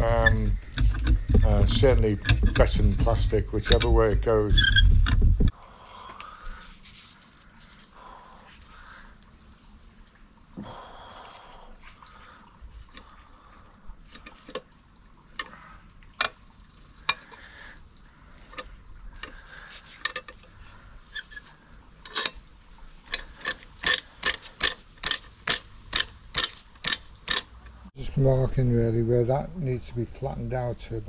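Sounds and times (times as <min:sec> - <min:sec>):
hand tool clicking: 0:23.2 - 0:27.8.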